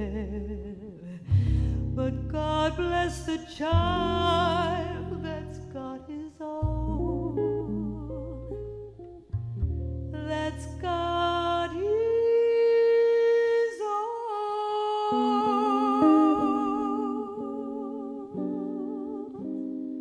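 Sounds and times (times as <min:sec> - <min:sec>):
woman singing with vibrato: 0:00.0 - 0:08.9, 0:10.1 - 0:19.6
guitar chords: 0:00.0 - 0:13.2, 0:14.8 - 0:20.0.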